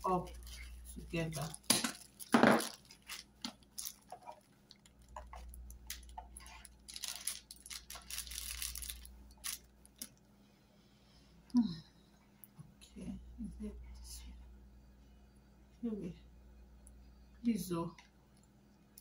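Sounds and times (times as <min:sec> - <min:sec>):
plastic wrapping crinkling: 0:00.0 - 0:10.2.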